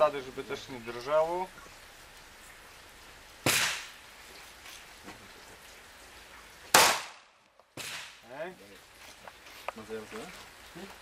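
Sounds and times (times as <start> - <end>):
pistol shots: 6.7 - 8.2.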